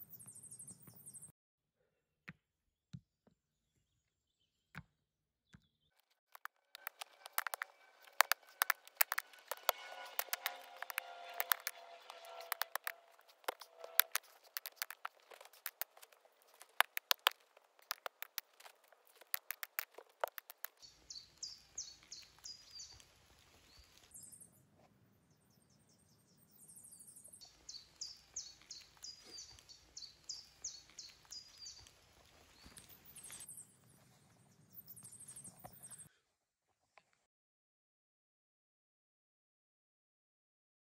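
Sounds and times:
birds chirping: 0.0 - 1.3, 6.8 - 24.6, 25.3 - 36.1
faint outdoor background: 0.0 - 37.2
sharp clicks and knocks: 6.4 - 21.0.

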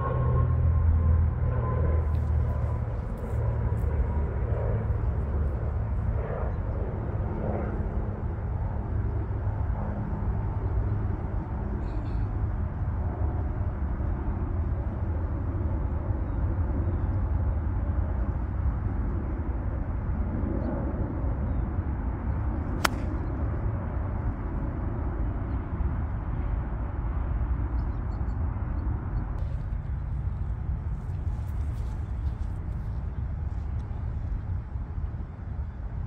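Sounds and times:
low outdoor rumble: 0.0 - 27.5, 29.0 - 36.0
golf club striking ball: 22.8 - 23.2.

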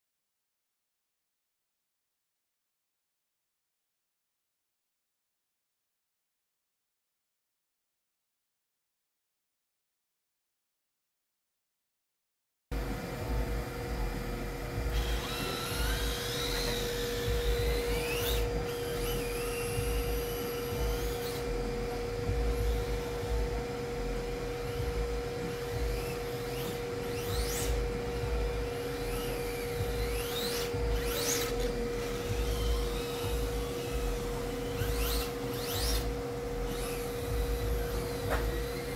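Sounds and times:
steady low hum: 12.7 - 38.9
electric motors whining: 12.8 - 38.9.

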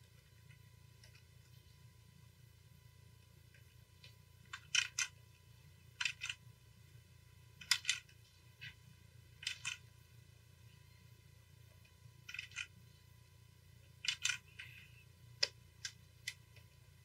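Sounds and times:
faint low hum: 0.0 - 17.0
computer mouse clicks: 3.5 - 5.2, 5.9 - 6.4, 9.4 - 9.9, 12.2 - 12.8, 14.0 - 16.7.

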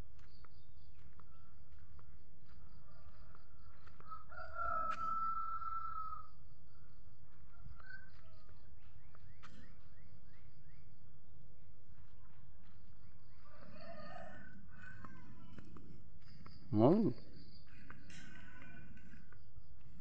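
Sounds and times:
rooster crowing: 2.9 - 6.4, 13.4 - 15.6.

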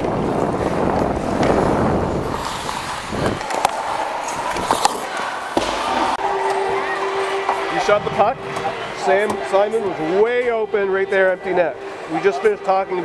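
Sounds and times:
wind rushing on microphone: 0.0 - 3.5
skates on ice: 0.0 - 7.6
sticks and puck clacking on ice: 2.3 - 6.7.

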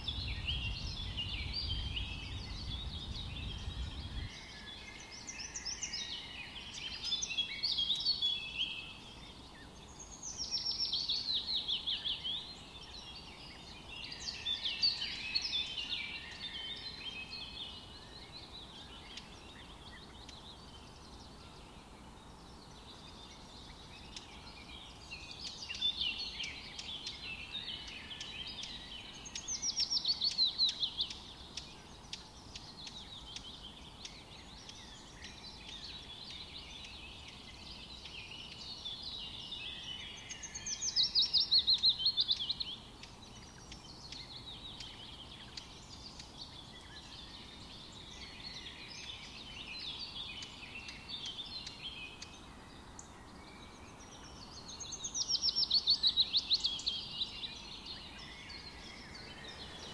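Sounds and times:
birds chirping: 0.0 - 59.9
loud bird song falling in pitch: 0.0 - 59.9.

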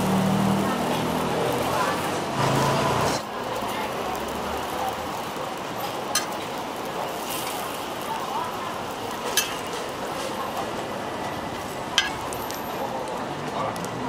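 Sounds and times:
food sizzling on a griddle: 0.0 - 14.0
metal utensil clicking on pan: 6.1 - 6.4, 9.3 - 9.7, 12.0 - 12.4.

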